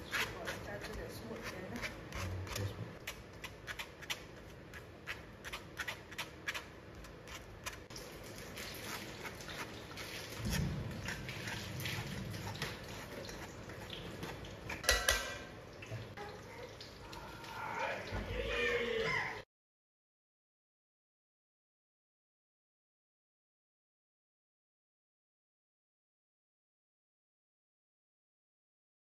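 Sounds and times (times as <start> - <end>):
spatula scraping wire-mesh sieve: 0.0 - 2.7, 8.5 - 15.2
spatula knocking in enamel pot: 14.8 - 15.4.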